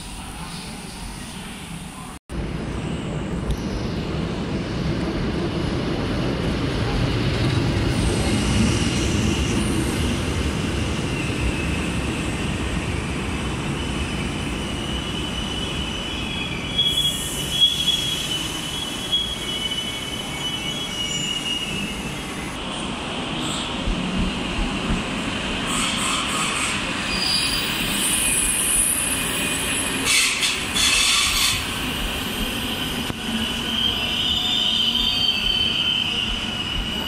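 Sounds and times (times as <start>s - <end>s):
train wheels rumbling on rail: 2.4s - 37.0s
high-pitched wheel squeal: 25.7s - 31.7s, 33.5s - 37.0s.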